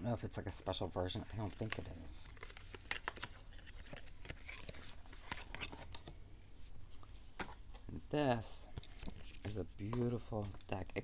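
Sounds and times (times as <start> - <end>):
cards and cardboard handled: 1.3 - 7.9.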